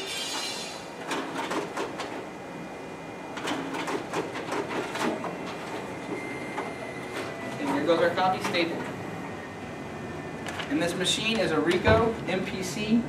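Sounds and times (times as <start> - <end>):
copier whirring: 0.0 - 13.0
paper handling clicks and clacks: 1.0 - 2.2, 3.4 - 6.2, 7.1 - 8.9.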